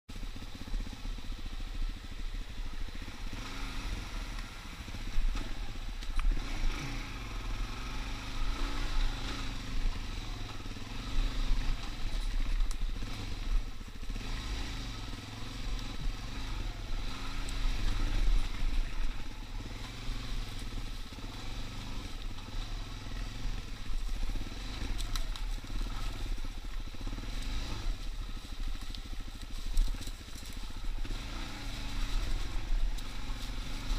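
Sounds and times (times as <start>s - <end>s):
off-road vehicle engine revving: 0.1s - 33.9s.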